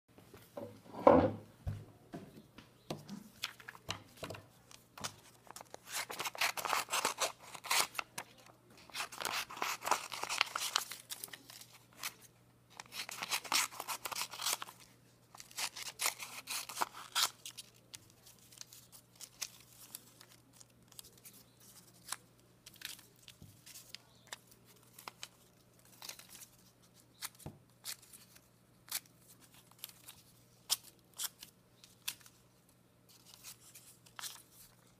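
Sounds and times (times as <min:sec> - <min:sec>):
scissors cutting paper: 0:05.5 - 0:08.0, 0:08.8 - 0:11.4, 0:12.8 - 0:14.8, 0:15.4 - 0:20.0.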